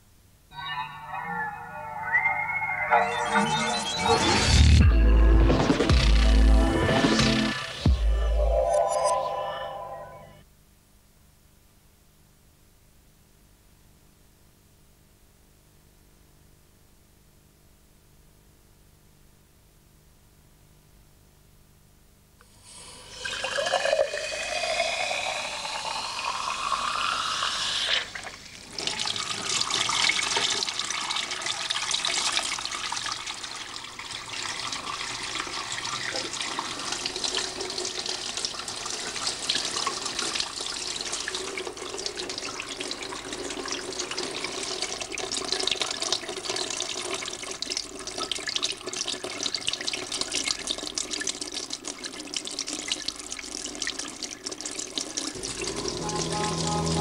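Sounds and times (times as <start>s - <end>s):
tap water filling a glass: 23.0s - 32.8s.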